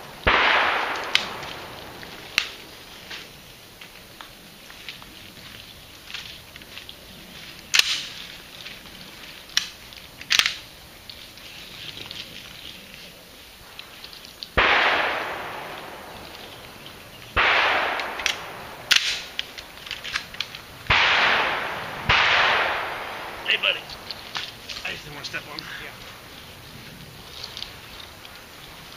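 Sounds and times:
shotgun shots echoing: 0:00.2 - 0:02.6, 0:14.6 - 0:16.2, 0:17.3 - 0:19.4, 0:20.9 - 0:23.9.

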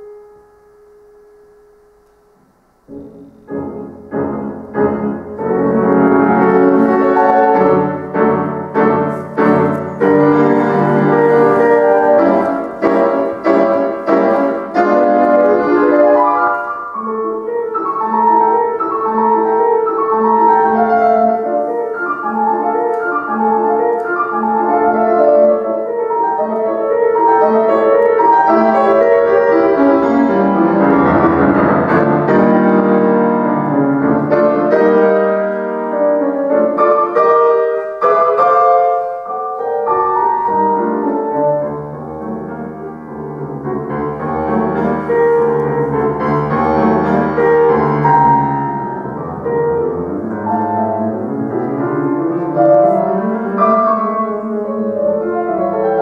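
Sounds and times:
solo grand piano piece: 0:00.0 - 0:56.0.

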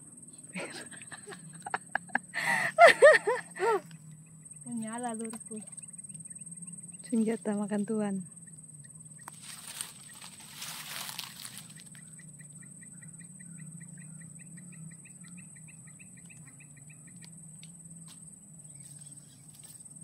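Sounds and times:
high-pitched insect drone: 0:00.0 - 0:20.0
low hum: 0:00.0 - 0:20.0
rustle: 0:09.2 - 0:12.3, 0:17.2 - 0:20.0.

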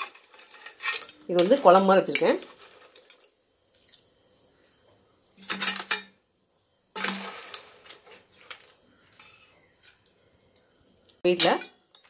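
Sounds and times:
ladle scraping metal pot: 0:00.0 - 0:03.3, 0:07.0 - 0:10.0.

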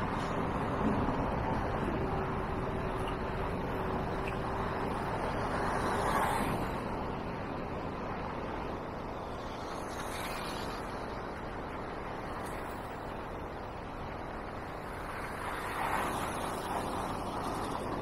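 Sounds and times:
cars passing close by: 0:00.0 - 0:18.0
street traffic: 0:00.0 - 0:18.0.

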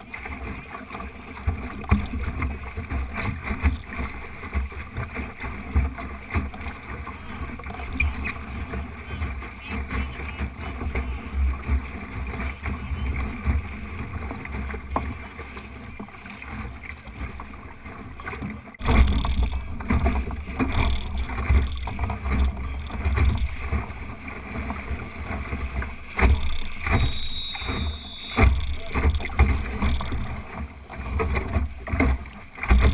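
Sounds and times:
water rushing along boat hull: 0:00.0 - 0:32.9.

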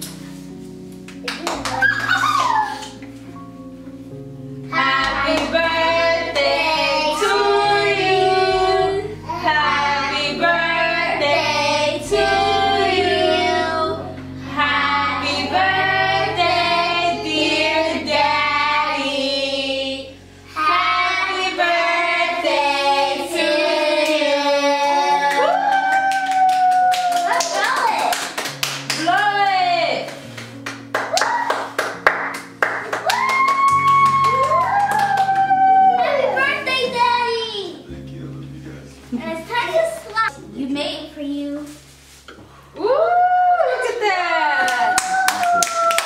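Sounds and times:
instrumental backing with bass: 0:00.0 - 0:25.3, 0:28.6 - 0:43.0
voices singing: 0:04.7 - 0:25.4.

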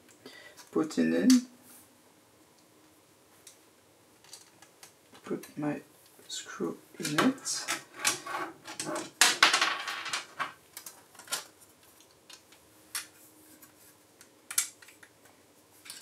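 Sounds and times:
plastic parts clicking and rattling: 0:04.2 - 0:05.0, 0:07.0 - 0:13.1.

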